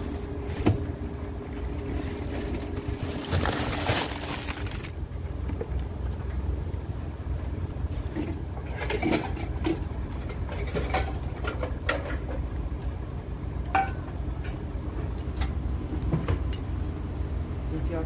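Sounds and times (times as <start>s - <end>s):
steady low rumble: 0.0s - 10.4s.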